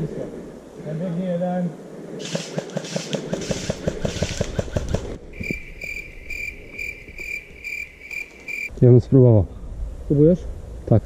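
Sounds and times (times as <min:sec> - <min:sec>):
high chirp: 0:05.4 - 0:08.7.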